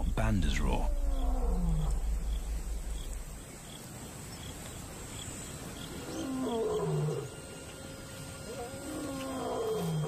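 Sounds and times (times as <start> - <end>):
faint insect chirps: 0.0 - 10.0
lion roaring: 0.7 - 3.4.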